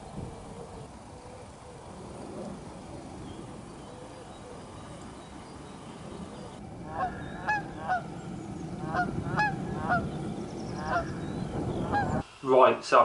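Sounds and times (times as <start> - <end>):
low steady rumble: 0.0 - 12.2
geese honking: 6.1 - 12.2.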